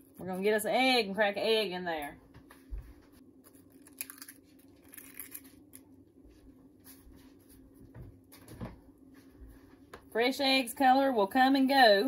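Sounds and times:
low steady hum: 0.0s - 12.0s
egg cracking: 3.5s - 6.0s.

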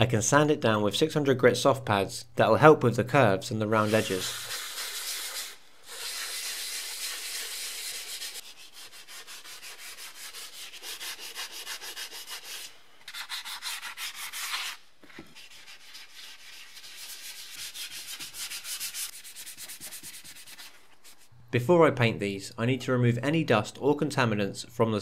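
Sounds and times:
sanding pad scraping: 3.8s - 21.3s.

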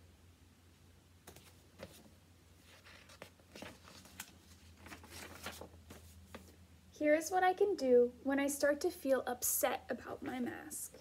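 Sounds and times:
low steady hum: 0.0s - 11.0s
book pages rustling and turning: 1.2s - 6.6s.

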